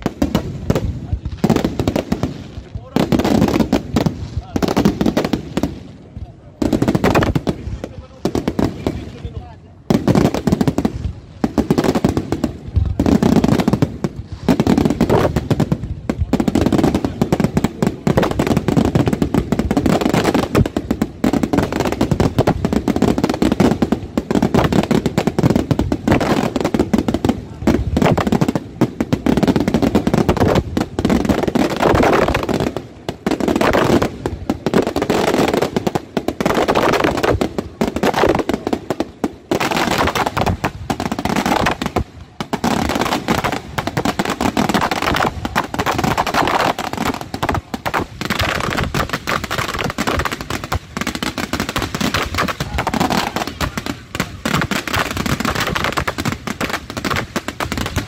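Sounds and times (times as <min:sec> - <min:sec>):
fireworks bursting and crackling: 0:00.0 - 0:58.0.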